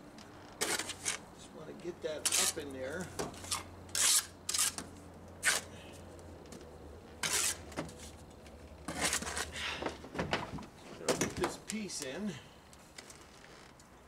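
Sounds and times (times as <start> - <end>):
trowel scraping mortar: 2.2 - 2.7, 3.4 - 4.8, 7.2 - 7.7.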